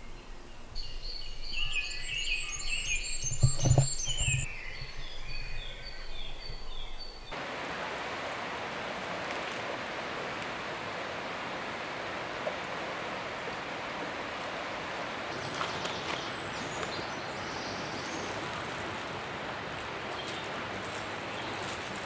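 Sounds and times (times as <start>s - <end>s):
shallow stream rushing: 7.3s - 22.0s.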